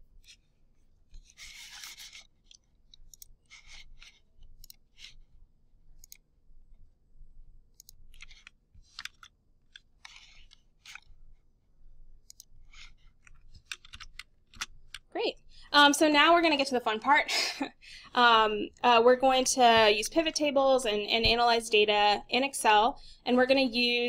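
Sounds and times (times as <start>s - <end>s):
computer mouse and keyboard clicks: 1.1s - 5.3s, 6.0s - 6.3s, 7.7s - 11.2s, 12.2s - 15.1s.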